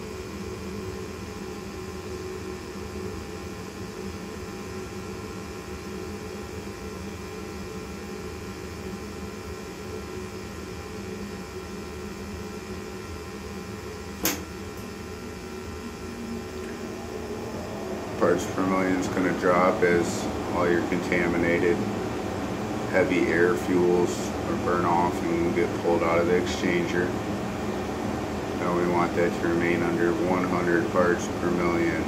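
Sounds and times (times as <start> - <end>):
gas furnace humming: 0.0 - 32.0
sharp click: 14.2 - 14.9.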